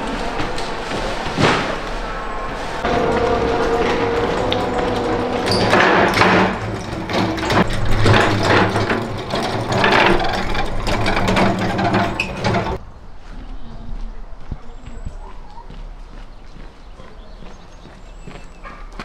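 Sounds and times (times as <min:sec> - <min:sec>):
rolling rumble: 0:00.0 - 0:12.9
metal stove rattling and clanking: 0:02.8 - 0:12.8.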